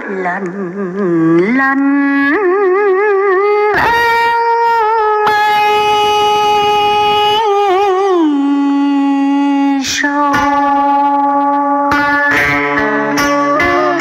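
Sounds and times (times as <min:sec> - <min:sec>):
woman singing with vibrato: 0:00.0 - 0:14.0
plucked string notes: 0:02.3 - 0:08.4, 0:09.3 - 0:14.0
backing music: 0:10.3 - 0:14.0.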